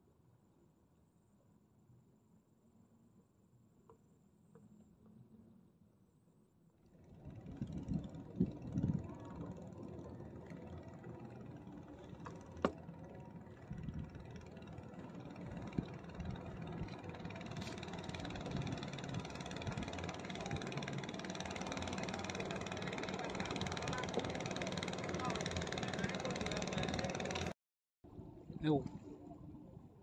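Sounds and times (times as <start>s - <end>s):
motor running: 6.9s - 27.6s.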